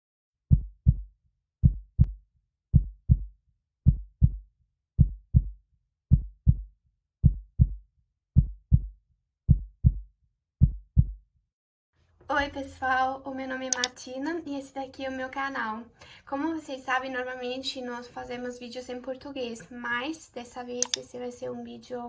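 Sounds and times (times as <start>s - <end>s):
heartbeat thumps: 0.5s - 4.4s, 5.0s - 7.8s, 8.4s - 11.2s.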